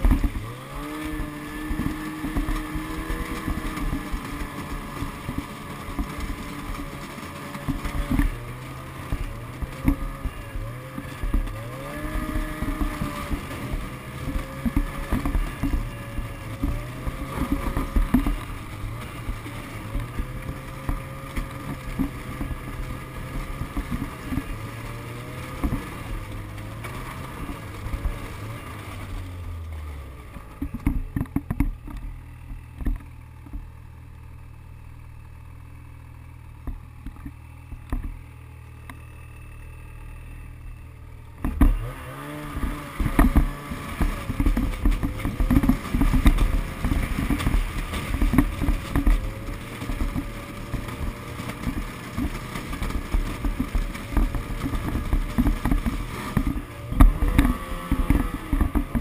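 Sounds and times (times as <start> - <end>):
snowmobile engine: 0.0 - 59.0.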